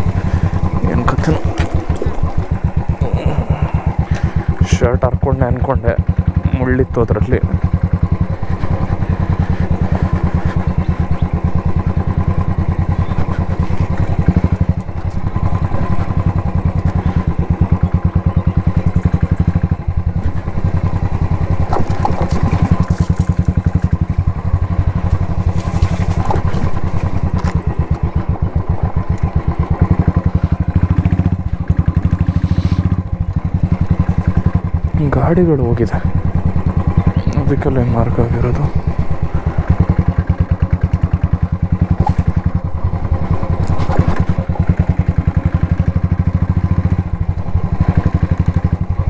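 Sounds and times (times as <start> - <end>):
motorcycle engine exhaust beat: 0.0 - 49.0.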